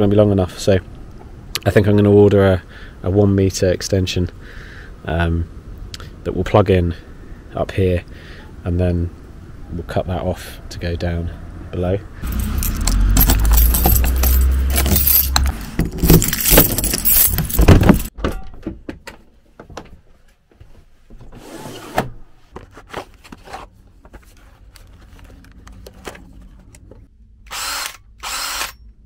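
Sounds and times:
keys jangling in door lock: 0:12.2 - 0:18.1.

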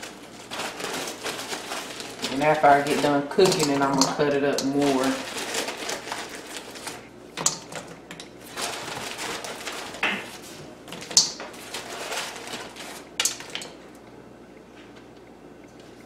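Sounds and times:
rustling: 0:00.0 - 0:07.1, 0:07.9 - 0:13.5.

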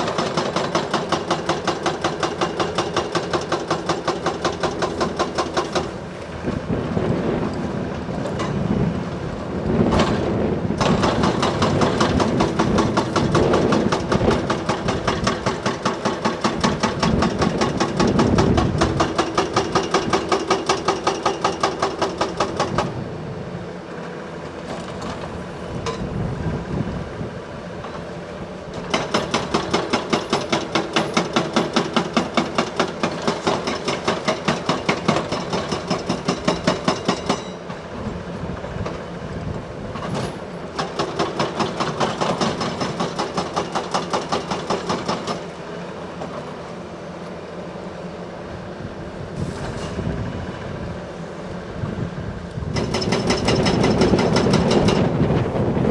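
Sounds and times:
hydraulic breaker hammering rock: 0:00.0 - 0:06.0, 0:09.8 - 0:23.0, 0:28.8 - 0:37.8, 0:40.0 - 0:45.6, 0:52.7 - 0:55.3.

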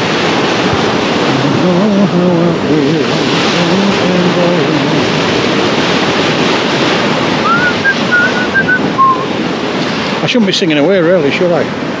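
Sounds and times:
surf breaking on beach: 0:00.0 - 0:12.0
wind on microphone: 0:00.0 - 0:12.0
man singing: 0:01.3 - 0:05.2
man whistling: 0:07.4 - 0:09.3.

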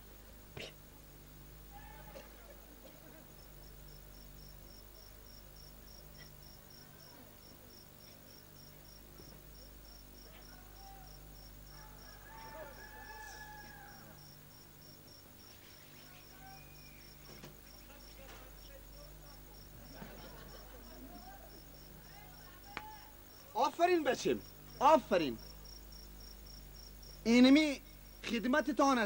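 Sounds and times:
low electrical hum: 0:00.0 - 0:29.0.

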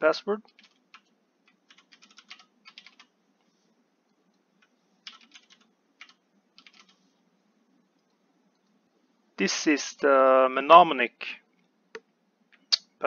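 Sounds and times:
faint keyboard typing: 0:00.4 - 0:07.2, 0:07.9 - 0:08.9.

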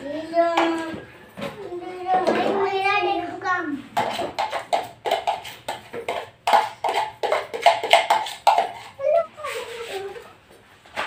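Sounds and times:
spoon knocking in a plastic bowl: 0:04.0 - 0:09.0.

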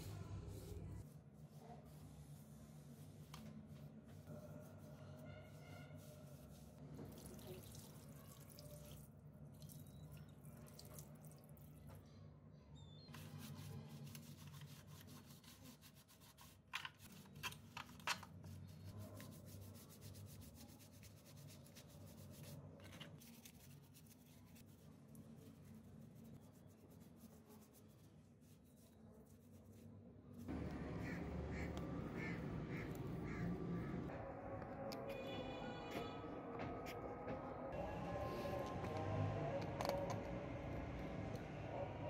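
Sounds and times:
brush scrubbing: 0:00.0 - 0:08.4, 0:13.1 - 0:17.6, 0:18.4 - 0:33.4
water pouring and dripping: 0:07.0 - 0:11.9.

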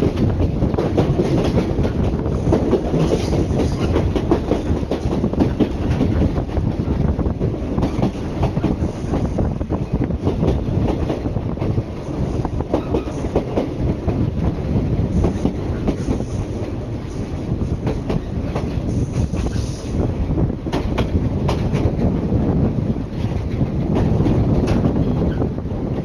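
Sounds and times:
train wheels rumbling on rail: 0:00.0 - 0:26.0
track clicks and knocks: 0:20.7 - 0:22.2, 0:23.1 - 0:26.0.

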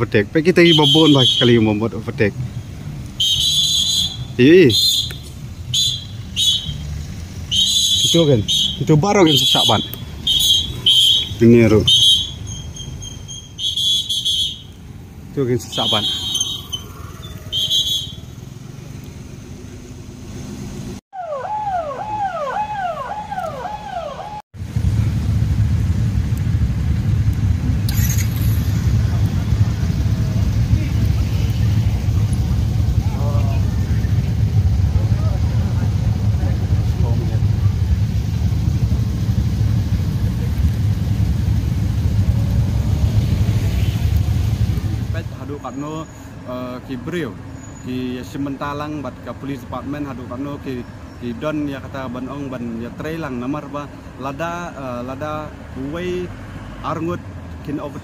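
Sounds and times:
motorcycle engine rumble: 0:00.0 - 0:48.4
road traffic noise: 0:00.0 - 0:58.0
shrill whistle-like tone: 0:03.2 - 0:05.2, 0:07.5 - 0:08.9, 0:15.8 - 0:18.2.

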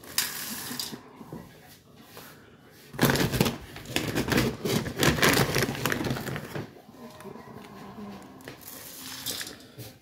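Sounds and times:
kibble poured into metal pan: 0:00.0 - 0:01.0, 0:08.8 - 0:09.6
plastic bag crinkling: 0:03.0 - 0:07.8.

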